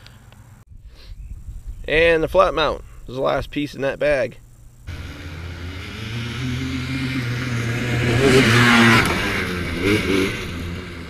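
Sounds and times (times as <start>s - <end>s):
atv engine accelerating past: 4.9s - 11.0s.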